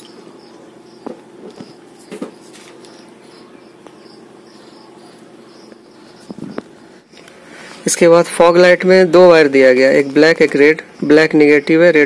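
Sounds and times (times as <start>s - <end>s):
faint high chirp: 0.0s - 7.3s
background chirring: 0.0s - 12.0s.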